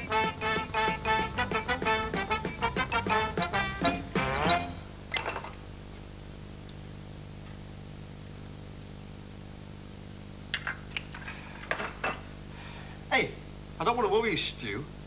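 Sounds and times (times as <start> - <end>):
teacups clinking on saucers: 5.1 - 5.7, 10.5 - 12.3.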